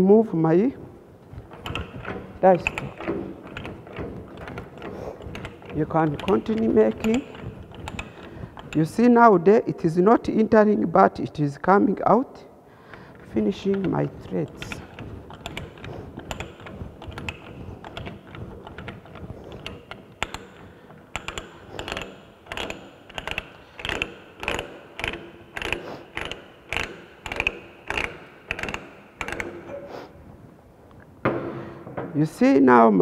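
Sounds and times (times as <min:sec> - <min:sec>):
ratchet clicking: 0:01.4 - 0:09.0, 0:13.5 - 0:29.8.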